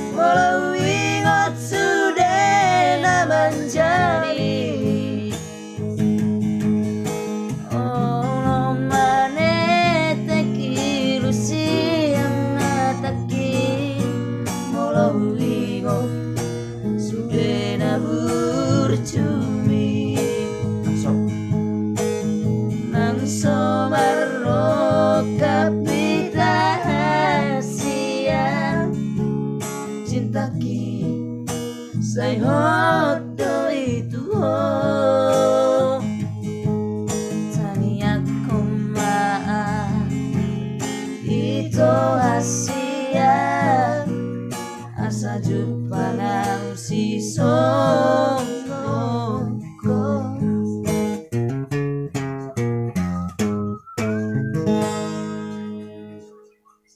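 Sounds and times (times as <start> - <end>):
two men singing: 0.0 - 5.2, 22.9 - 28.9, 32.0 - 36.0, 45.1 - 50.7
strummed acoustic guitar: 0.0 - 56.9.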